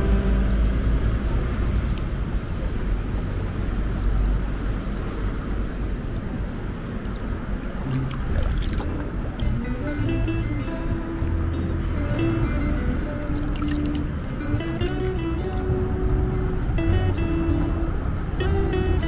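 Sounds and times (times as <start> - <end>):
outdoor noise: 0.0 - 19.0
traffic rumble: 0.0 - 19.0.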